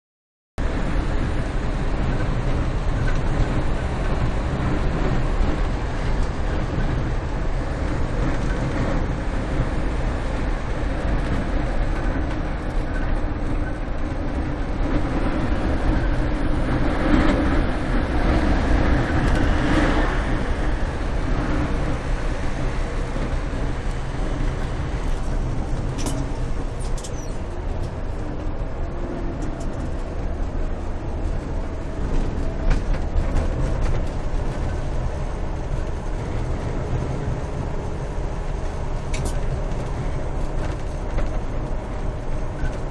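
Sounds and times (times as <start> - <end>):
bus engine drone: 0.6 - 42.9
road and wind noise: 0.6 - 42.9.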